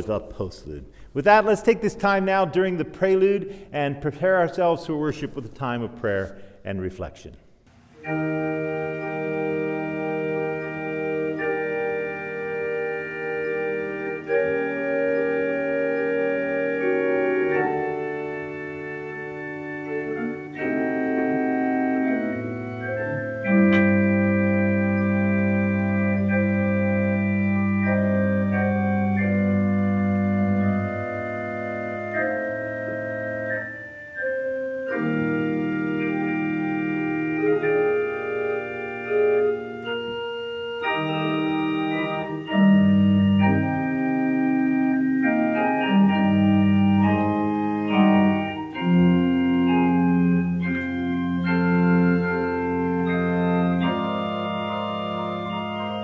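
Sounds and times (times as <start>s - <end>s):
church organ playing chords: 0.0s - 56.0s.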